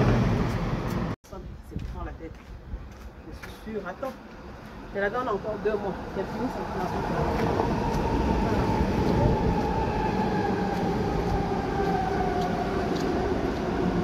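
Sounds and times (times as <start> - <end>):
train wheels rumbling on rails: 0.0 - 1.2, 2.8 - 14.0.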